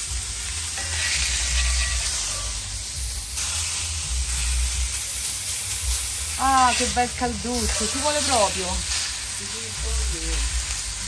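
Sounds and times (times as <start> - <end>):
meat sizzling on a grill: 0.0 - 11.0.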